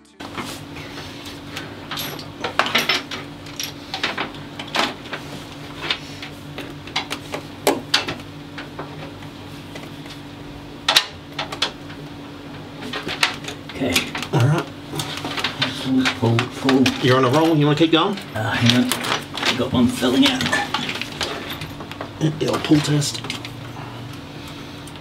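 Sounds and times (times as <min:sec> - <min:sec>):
steady low hum: 0:00.1 - 0:25.0
clicks and rattles of tools: 0:01.9 - 0:05.0, 0:12.8 - 0:23.6.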